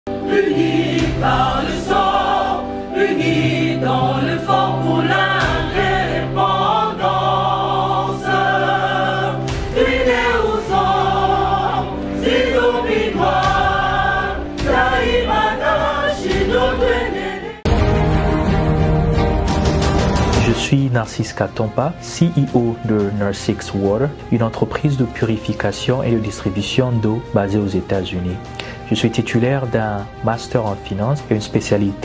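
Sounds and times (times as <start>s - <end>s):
choir singing: 0.1s - 18.0s.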